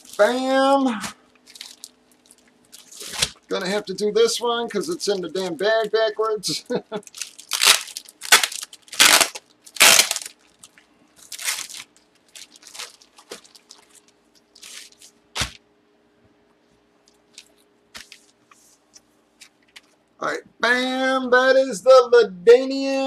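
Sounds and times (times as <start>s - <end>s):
plastic bag crinkling and rustling: 0.0s - 15.6s, 17.0s - 18.6s.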